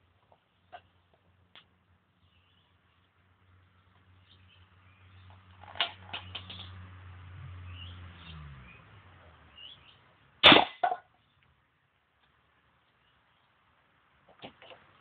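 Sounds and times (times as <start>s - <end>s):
tin can knocked over: 10.4s - 11.1s.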